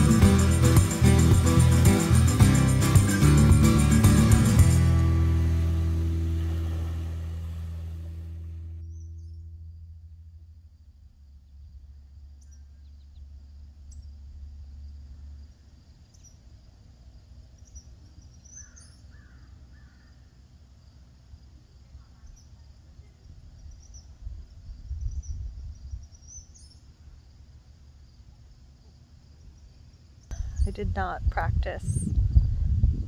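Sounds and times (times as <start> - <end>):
insects chirping: 11.2 - 30.6
wind rumble on microphone: 23.5 - 26.2, 30.3 - 33.0.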